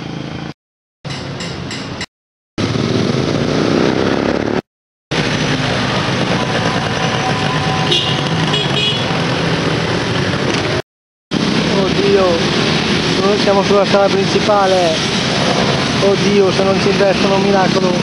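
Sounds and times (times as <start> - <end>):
busy street traffic: 0.0 - 18.0
motorbike engines: 2.6 - 18.0
car horn tooting: 6.4 - 9.2.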